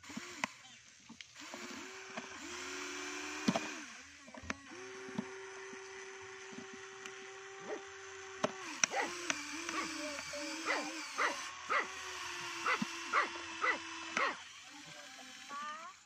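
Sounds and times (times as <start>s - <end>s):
toy electric motors whining: 0.0s - 16.0s.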